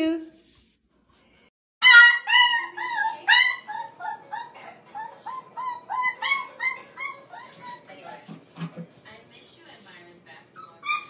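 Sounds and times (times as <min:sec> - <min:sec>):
puppy yipping: 0:01.8 - 0:08.2, 0:10.6 - 0:11.0.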